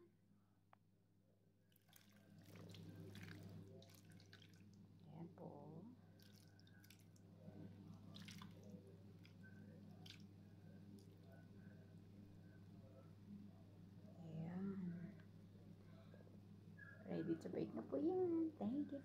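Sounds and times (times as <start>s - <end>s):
marinade dripping: 1.8s - 5.1s, 6.1s - 11.6s
low steady hum: 1.9s - 19.0s.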